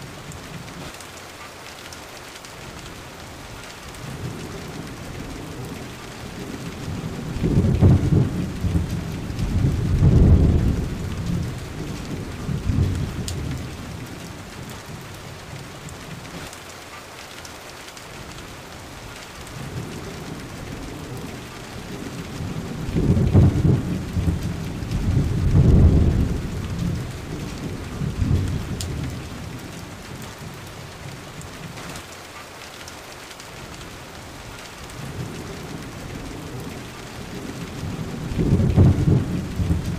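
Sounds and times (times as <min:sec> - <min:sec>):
steady rain: 0:00.0 - 0:39.9
deep thunder rolling: 0:06.4 - 0:14.0, 0:19.7 - 0:29.6, 0:37.3 - 0:39.9.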